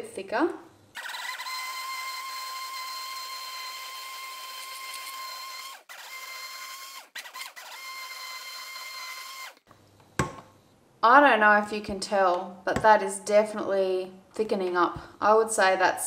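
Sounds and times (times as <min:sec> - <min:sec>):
stick blender motor whine: 0:01.0 - 0:09.7.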